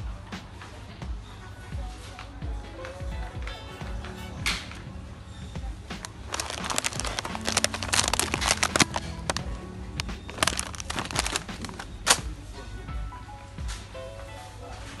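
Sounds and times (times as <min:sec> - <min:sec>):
background music: 0:00.0 - 0:15.0
plastic packet crinkling: 0:06.0 - 0:12.2.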